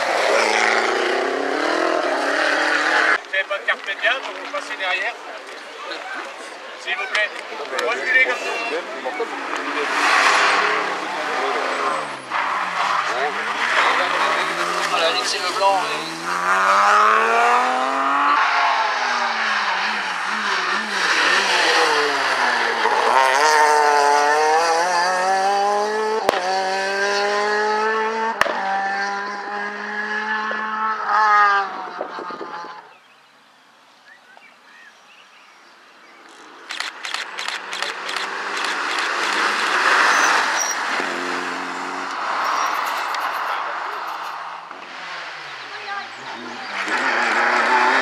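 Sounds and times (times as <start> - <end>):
rally car engine revving: 0.0 - 3.2, 8.2 - 32.8, 36.4 - 48.0
engine crackles: 36.3 - 41.3.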